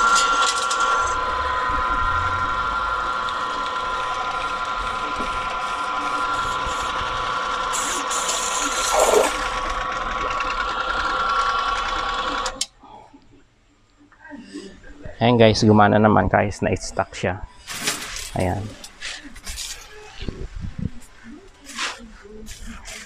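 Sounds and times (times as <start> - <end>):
pressure washer motor humming: 0.0 - 12.7.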